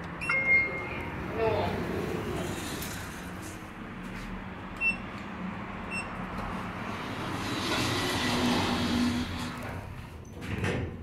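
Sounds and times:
short electronic beeps: 0.2 - 1.2
elevator doors sliding with motor hum: 0.2 - 3.7, 5.9 - 11.0.

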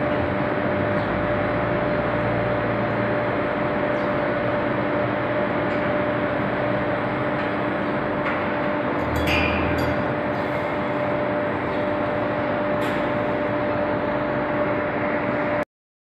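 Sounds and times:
machinery hum with two tones: 0.0 - 15.6
metal clanks: 9.0 - 10.1.

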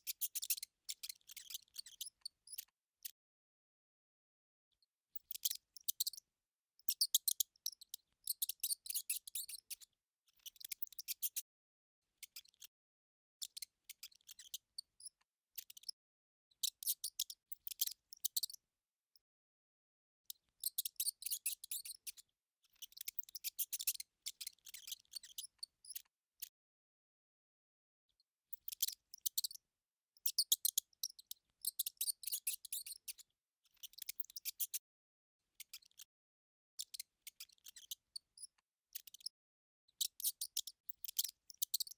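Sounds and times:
mouse squeaking and chittering: 0.0 - 3.2, 5.1 - 6.2, 6.8 - 11.5, 12.2 - 12.8, 13.4 - 16.0, 16.6 - 18.6, 20.3 - 26.5, 28.5 - 29.6, 30.2 - 34.8, 35.6 - 36.1, 36.8 - 39.4, 40.0 - 41.9.

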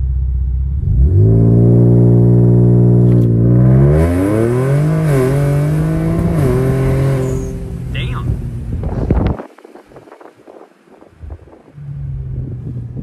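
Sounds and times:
car engine revving from inside: 0.7 - 9.3.

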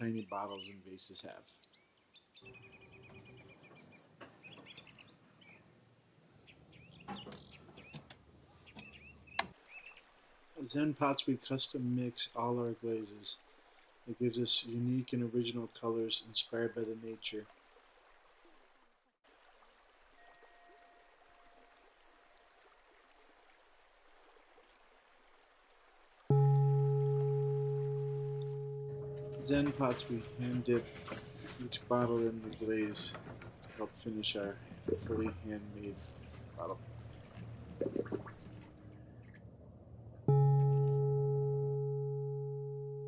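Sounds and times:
small birds chirping: 0.0 - 11.3
faint steady hiss: 0.0 - 39.2
faint thin tone: 20.2 - 21.9, 26.3 - 32.8, 40.3 - 43.0
low steady hum: 26.3 - 43.0.

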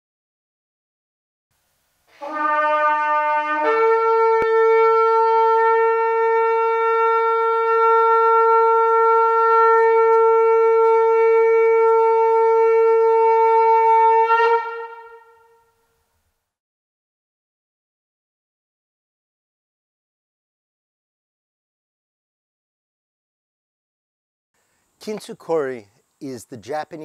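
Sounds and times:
shofar blast: 2.1 - 16.0.

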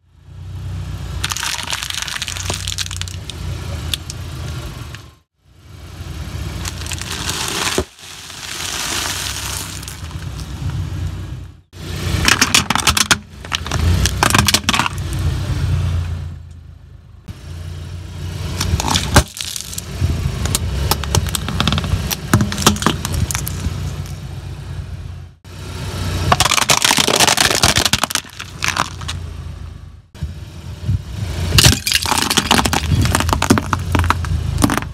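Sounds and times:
low car engine hum: 0.0 - 34.9
plastic crackling under tyre: 1.2 - 4.2, 6.6 - 10.8, 18.6 - 24.2, 26.3 - 29.2, 31.6 - 34.9.

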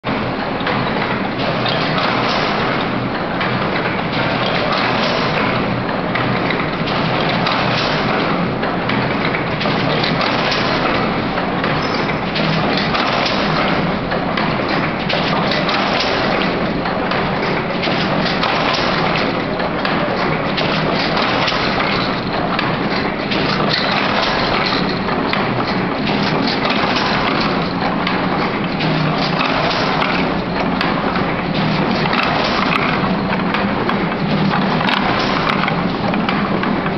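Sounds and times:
net making machine clattering: 0.1 - 36.9.

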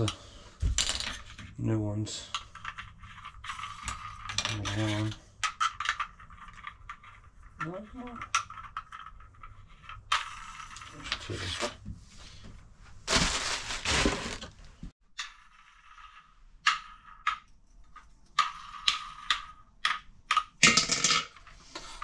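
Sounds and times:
plastic parts rustling: 13.0 - 14.9.

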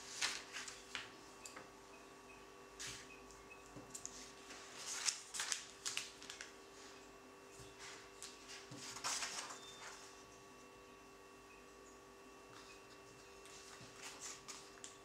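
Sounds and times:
paper pages turning: 0.0 - 1.1, 4.0 - 6.5, 7.9 - 10.0
faint steady hum: 0.0 - 15.0.

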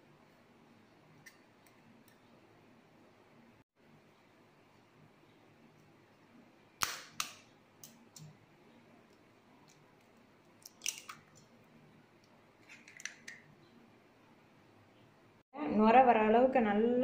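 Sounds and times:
eggshell cracking: 10.6 - 11.5.

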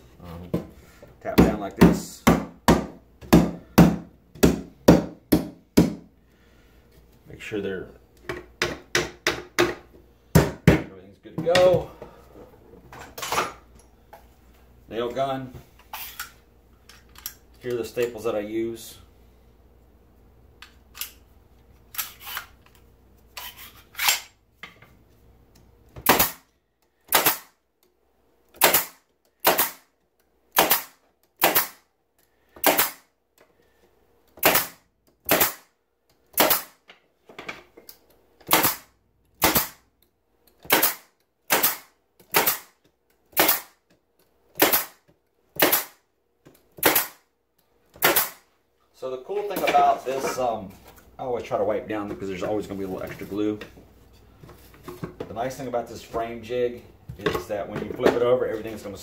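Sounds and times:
pneumatic staple gun shots: 26.0 - 26.5, 27.1 - 27.6, 28.6 - 29.9, 30.5 - 31.8, 32.6 - 33.1, 34.4 - 35.7, 36.4 - 36.8, 38.5 - 39.8, 40.6 - 43.8, 44.6 - 45.0, 45.6 - 46.0, 46.8 - 47.2, 48.0 - 48.4.

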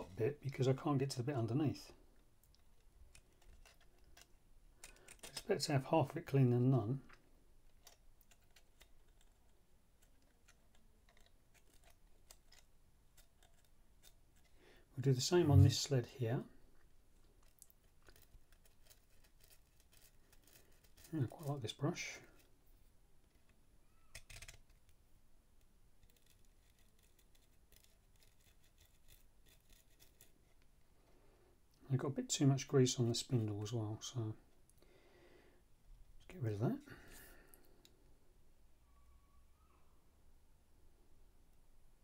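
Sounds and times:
bristle brush scratching: 26.1 - 30.6.

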